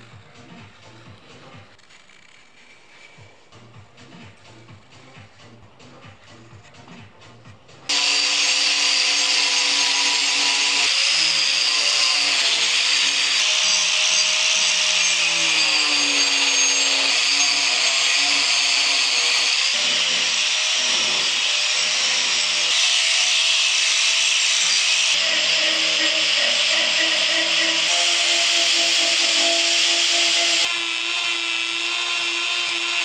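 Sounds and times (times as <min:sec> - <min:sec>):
angle grinder motor whine: 0:07.9 - 0:33.0.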